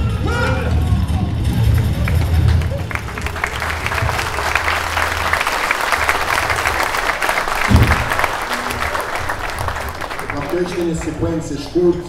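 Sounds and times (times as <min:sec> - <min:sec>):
audience applauding: 0:01.4 - 0:11.8
low thump: 0:07.7 - 0:08.2.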